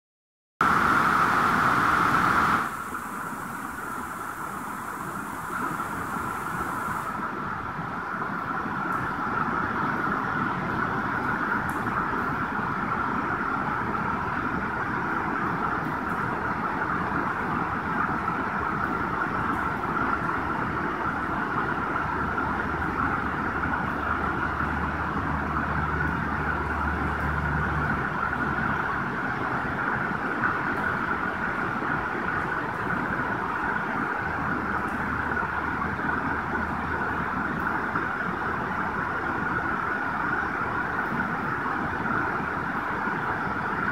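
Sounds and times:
river rushing over rocks: 0:00.6 - 0:07.9.

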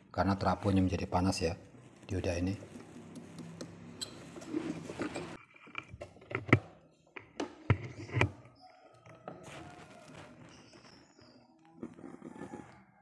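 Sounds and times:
soft rustling: 0:09.3 - 0:11.4.

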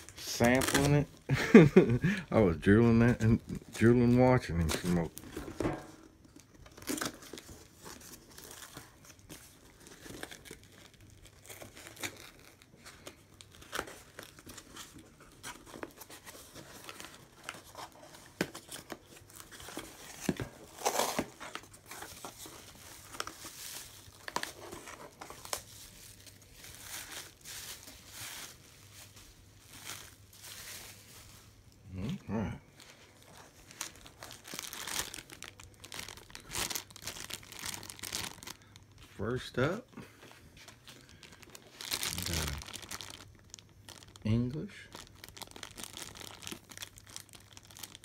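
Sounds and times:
duct tape peeling and tearing: 0:00.0 - 0:01.1, 0:41.8 - 0:43.2
cardboard and packing rustling: 0:00.0 - 0:02.0, 0:02.6 - 0:32.1, 0:32.7 - 0:39.2, 0:40.0 - 0:44.2.

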